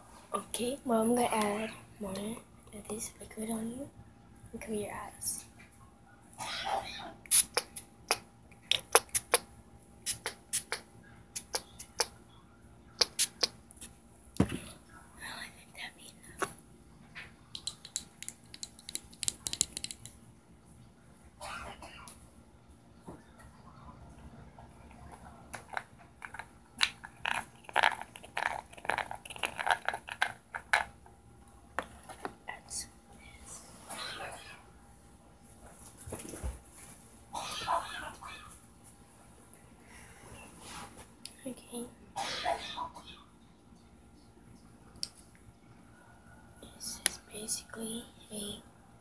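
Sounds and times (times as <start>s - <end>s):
sharp clicks and taps: 17.5s - 20.2s.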